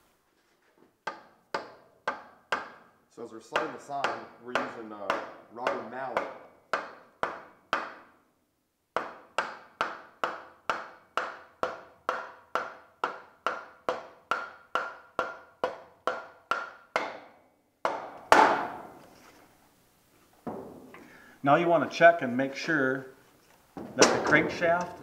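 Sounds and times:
rubber mallet tapping metal tube: 1.0 - 2.8, 3.6 - 8.1, 9.0 - 18.9.

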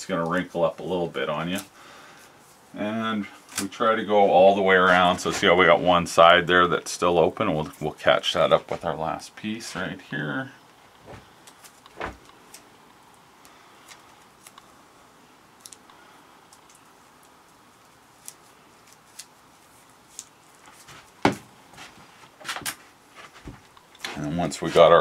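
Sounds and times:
tape clicking and crackling: 3.4 - 3.8, 10.7 - 14.8, 15.5 - 21.4, 22.3 - 25.0.

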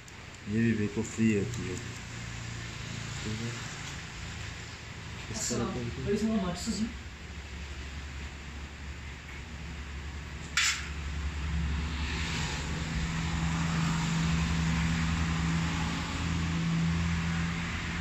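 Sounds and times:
sharp click: 10.4 - 10.9
low engine hum: 11.0 - 18.0.

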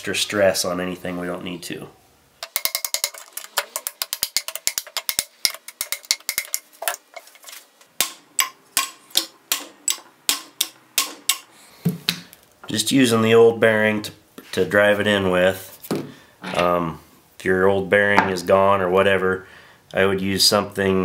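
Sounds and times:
hammer tapping on metal: 8.0 - 11.5.

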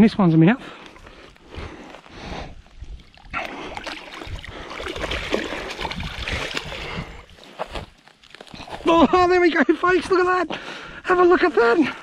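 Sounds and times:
fish thrashing and splashing: 2.8 - 8.3.

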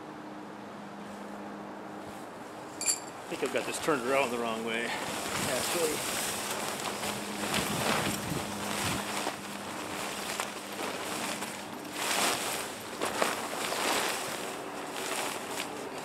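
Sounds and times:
tent cover rustling and flapping: 3.3 - 16.0.

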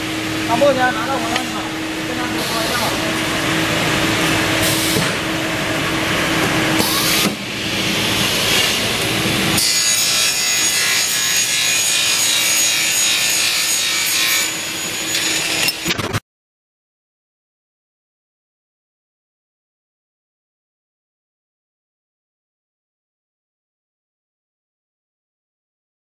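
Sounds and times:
machine with high whine: 0.0 - 16.2
saw cutting through metal: 6.7 - 16.1.

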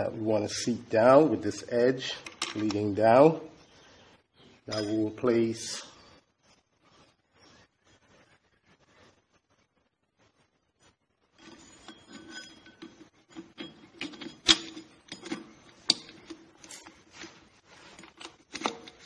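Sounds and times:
metal clicks and rattles: 2.2 - 2.9, 11.4 - 17.0, 17.9 - 19.0.

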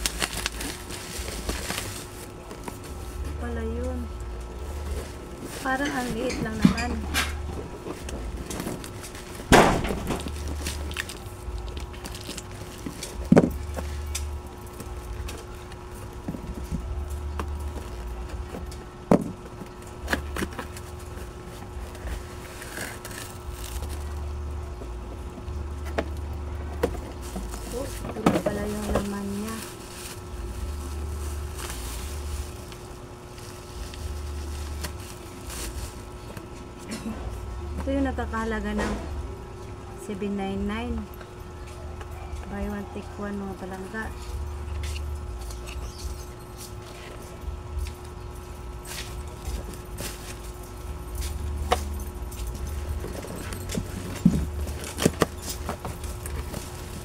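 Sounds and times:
cardboard rustling: 0.0 - 3.6, 25.9 - 36.5, 51.2 - 57.0
bubble wrap crinkling: 0.0 - 18.7, 19.7 - 24.8, 25.6 - 36.6, 48.6 - 57.0
steady low hum: 0.0 - 57.0.

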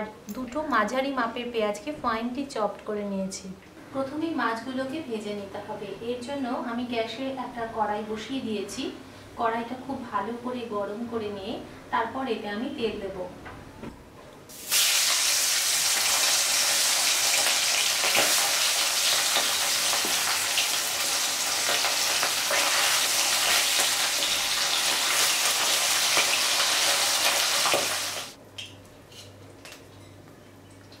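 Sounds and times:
fish sizzling in hot oil: 14.5 - 28.4.

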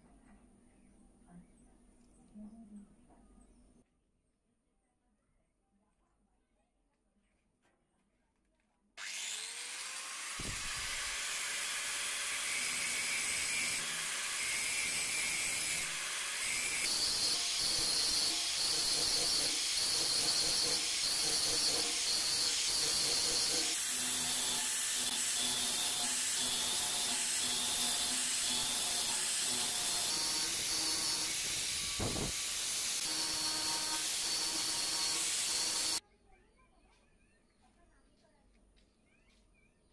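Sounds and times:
angle grinder grinding steel: 9.0 - 36.0.

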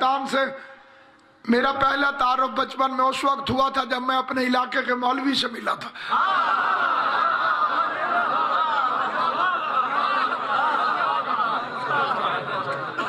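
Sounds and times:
audience laughing: 6.1 - 13.0.

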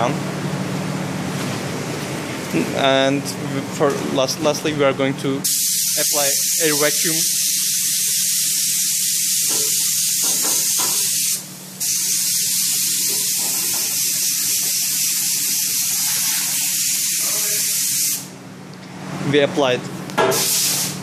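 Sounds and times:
compressed air hissing: 5.4 - 18.3, 20.3 - 21.0.

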